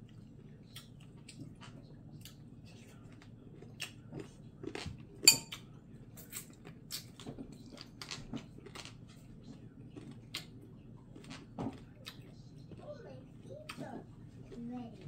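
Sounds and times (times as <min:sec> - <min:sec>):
spoon tapping dishes: 0:05.3 - 0:05.6.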